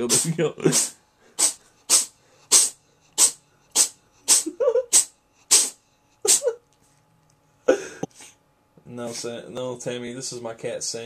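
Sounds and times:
cat sneezing: 0.0s - 6.6s.

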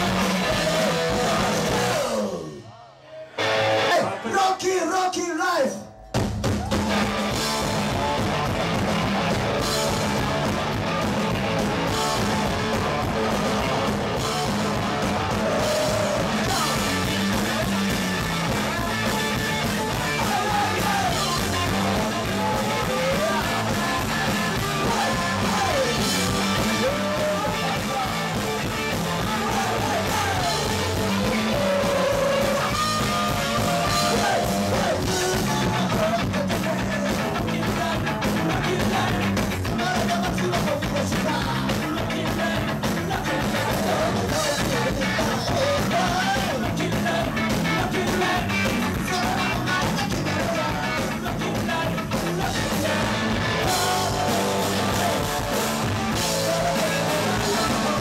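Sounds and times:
live punk rock band: 0.0s - 58.0s
person singing: 12.1s - 58.0s.

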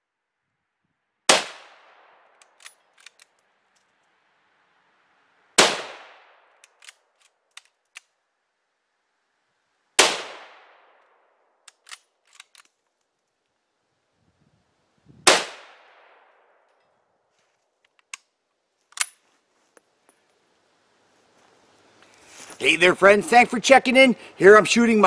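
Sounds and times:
rifle shots echoing: 1.3s - 2.8s, 5.6s - 6.6s, 10.0s - 11.2s, 15.3s - 16.6s
rifle bolt metallic clicks: 2.3s - 4.0s, 6.6s - 8.1s, 11.6s - 13.1s, 17.8s - 18.3s, 18.9s - 19.2s.

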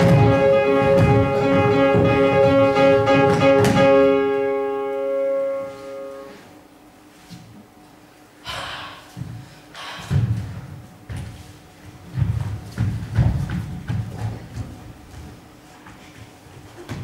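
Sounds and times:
instrumental music with plucked notes: 0.0s - 5.9s.

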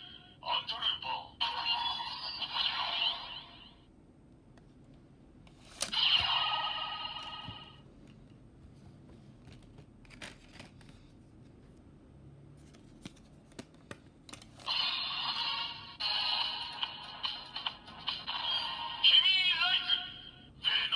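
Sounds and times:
loud electronic toy sound: 1.4s - 3.8s, 5.9s - 7.8s, 14.6s - 20.9s
card sliding and rustling: 5.5s - 6.3s, 8.8s - 11.8s.

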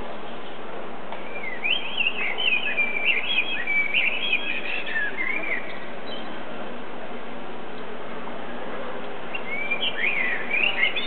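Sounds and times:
blackbird singing: 1.2s - 6.4s, 9.3s - 11.0s.

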